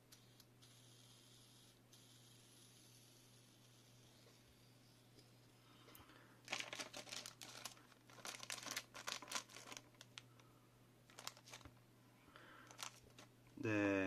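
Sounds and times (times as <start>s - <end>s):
plastic bag crinkling: 6.4s - 10.5s, 11.1s - 11.8s, 12.6s - 13.3s.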